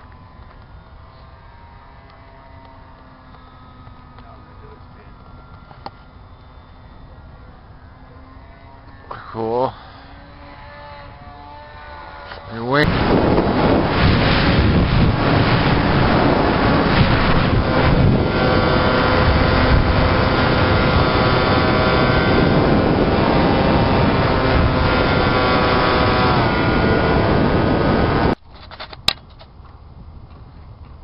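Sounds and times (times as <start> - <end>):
model plane motor whine: 0.0 - 28.4
wind rush on microphone: 12.4 - 31.0.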